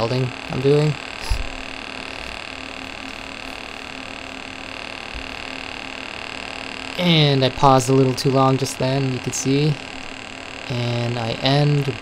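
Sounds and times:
welding arc buzzing: 0.0 - 12.0.

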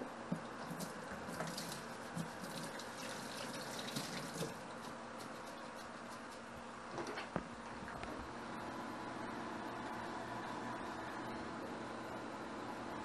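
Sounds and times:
tap water running into sink: 1.3 - 4.6.

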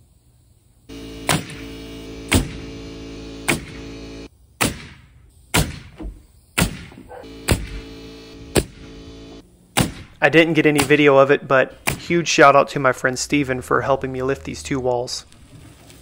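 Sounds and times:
nail gun shots: 1.2 - 1.7, 2.3 - 2.6, 3.5 - 3.8, 4.6 - 7.8, 8.5 - 8.8, 9.8 - 11.1, 11.8 - 12.1.

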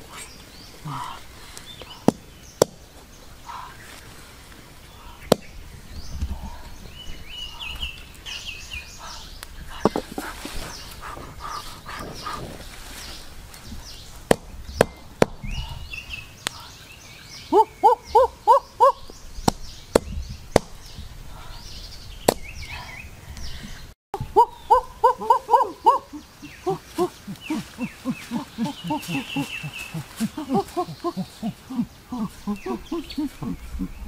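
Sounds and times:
faint birds chirping: 0.0 - 34.0
bird hooting: 17.5 - 19.1, 24.2 - 34.0.

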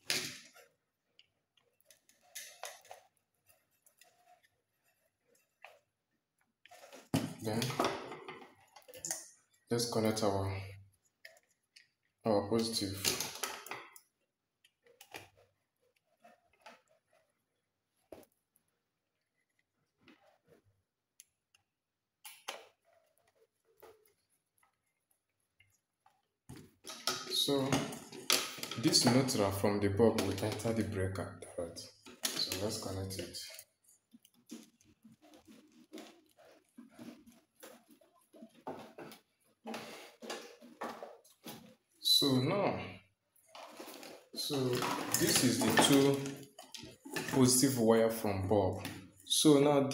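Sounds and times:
wire ends clicking and scraping: 0.0 - 5.9, 11.0 - 17.4, 19.2 - 30.9, 31.8 - 41.9, 43.4 - 47.7.

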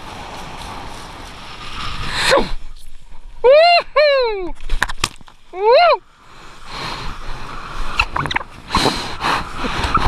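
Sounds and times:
wind rushing across microphone: 0.0 - 4.9, 5.5 - 10.0
board skimming over water: 0.0 - 10.0.

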